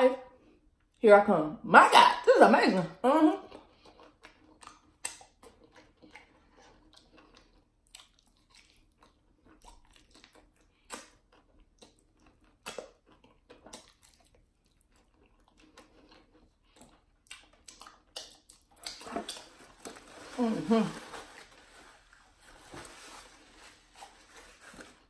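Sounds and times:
person chewing food: 3.4 - 20.3.

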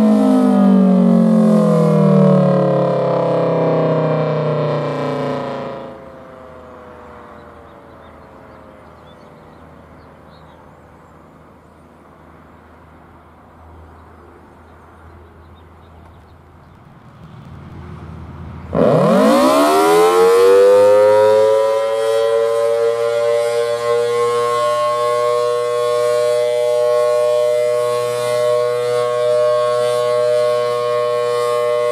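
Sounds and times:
siren winding down: 0.0 - 7.1, 18.7 - 31.9
siren sweeping up in pitch: 0.0 - 8.2, 18.7 - 31.9.

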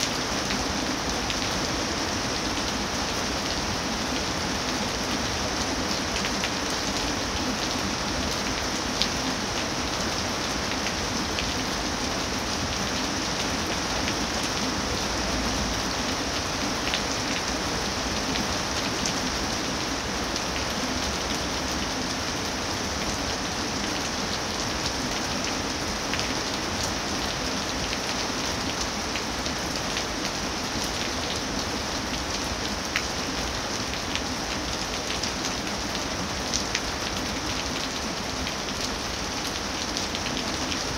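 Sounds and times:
rain falling on leafy trees: 0.0 - 40.9.

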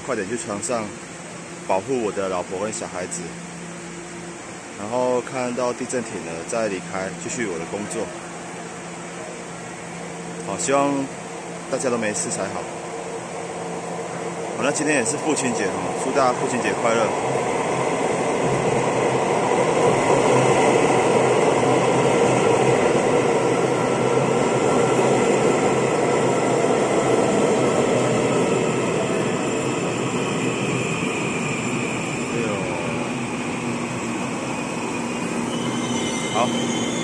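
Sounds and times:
train wheels rumbling on rails: 10.0 - 37.0
train motor whine: 13.1 - 37.0.

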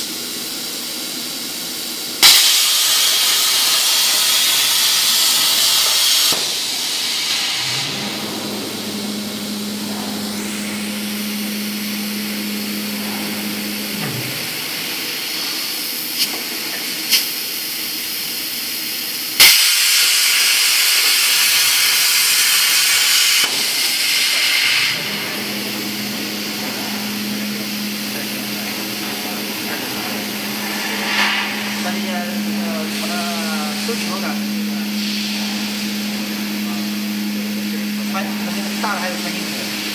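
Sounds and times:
plasma cutter hissing: 2.2 - 17.6, 19.4 - 39.9
drive motors humming: 6.8 - 15.6, 24.7 - 39.9.

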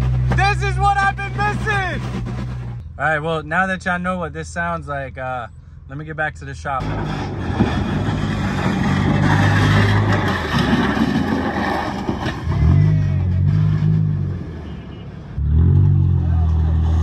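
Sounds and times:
car body scraping on road: 0.0 - 2.8, 6.8 - 15.0
car engine revving: 6.8 - 14.8.

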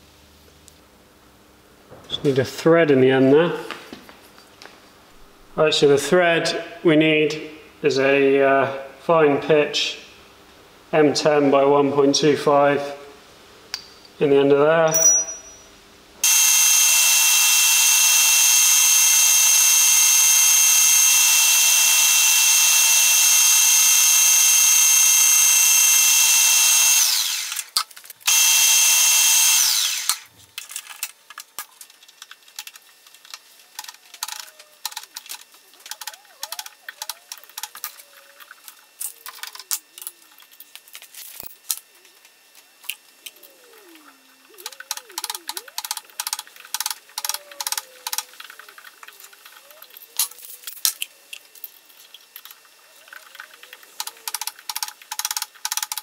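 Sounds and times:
lathe drilling whine: 16.2 - 27.7, 28.3 - 30.3
lathe winding down: 16.2 - 27.7, 28.3 - 30.3, 43.4 - 49.6.

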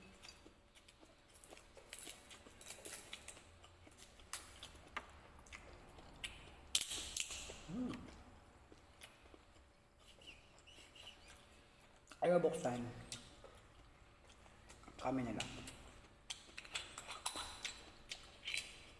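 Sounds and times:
person grunting hum: 7.7 - 8.2.

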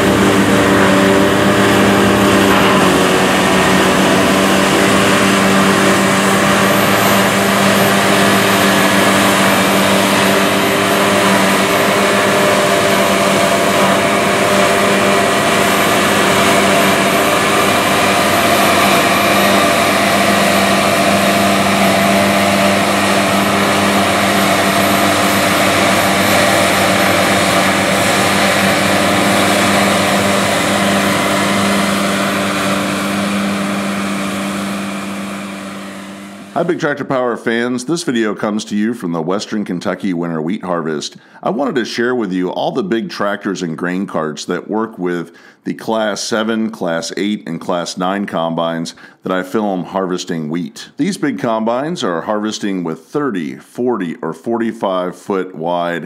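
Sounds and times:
combine harvester mechanical drone: 0.0 - 37.0.

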